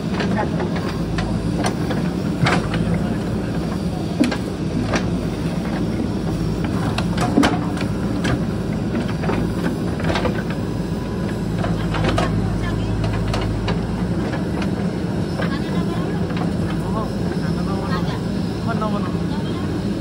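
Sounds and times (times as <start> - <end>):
diesel engine running: 0.0 - 20.0
sharp knocks and clanks: 0.1 - 10.6.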